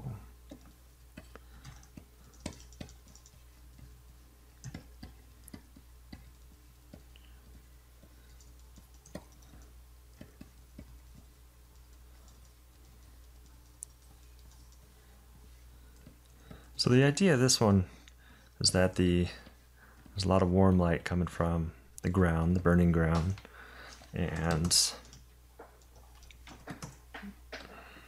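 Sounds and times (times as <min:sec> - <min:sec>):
keyboard and mouse clicks: 0:00.5 - 0:04.0, 0:04.6 - 0:14.9, 0:23.1 - 0:27.7.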